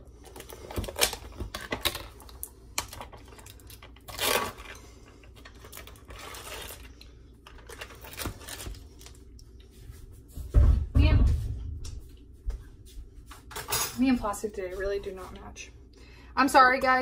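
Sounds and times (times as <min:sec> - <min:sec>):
plastic seal tearing: 0:00.6 - 0:04.8.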